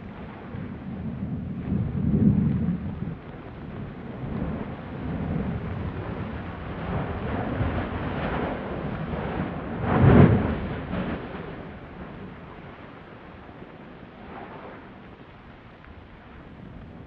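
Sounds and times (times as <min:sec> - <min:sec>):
volcanic explosion blast: 0:00.0 - 0:13.0
volcano rumbling and roaring: 0:00.0 - 0:17.0.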